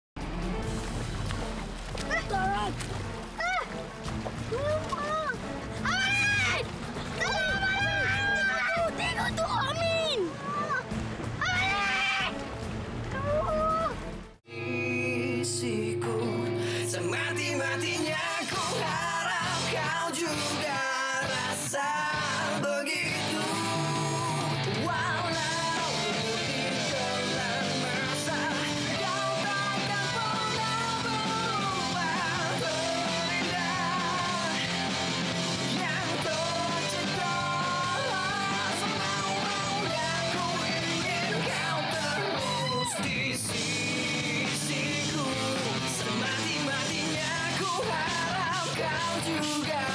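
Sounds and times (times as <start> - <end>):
singing over instrumental backing: 14.5 - 34.9, 35.6 - 49.9.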